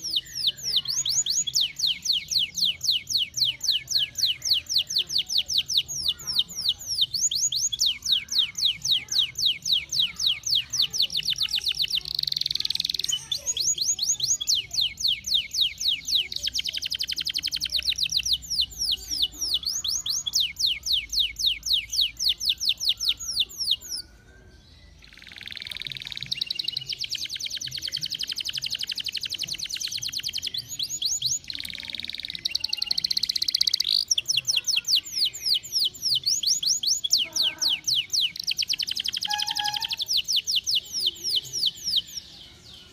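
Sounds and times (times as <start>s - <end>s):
canary singing fast trills: 0.0s - 42.9s.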